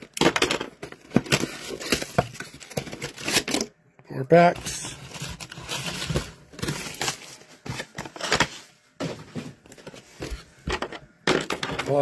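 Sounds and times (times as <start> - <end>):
foil card packs crinkling: 0.0 - 3.7, 4.3 - 8.7.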